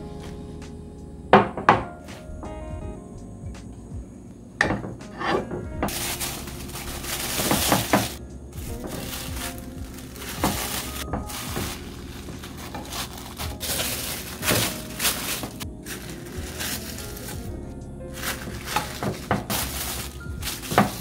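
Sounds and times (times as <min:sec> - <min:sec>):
background music: 0:00.0 - 0:21.0
plastic bag crinkling: 0:05.9 - 0:17.6, 0:18.2 - 0:21.0.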